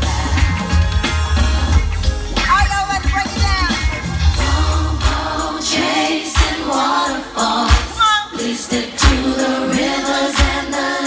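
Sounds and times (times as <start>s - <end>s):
person singing over a beat: 7.6s - 11.0s.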